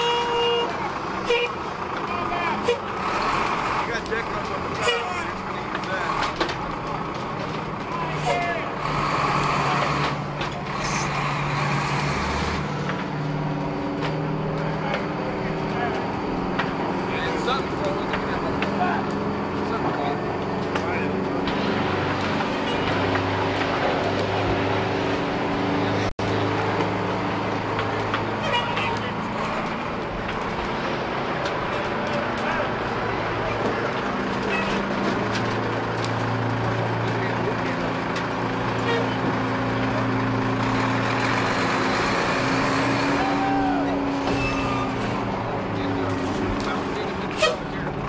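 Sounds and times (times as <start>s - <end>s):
large engine running: 0.0s - 48.0s.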